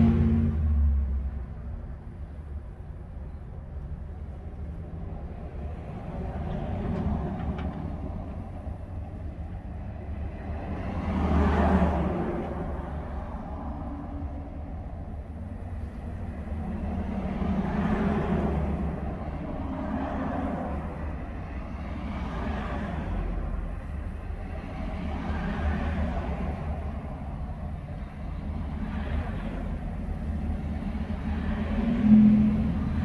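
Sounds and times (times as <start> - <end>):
vehicles passing on snowy road: 0.0 - 33.0.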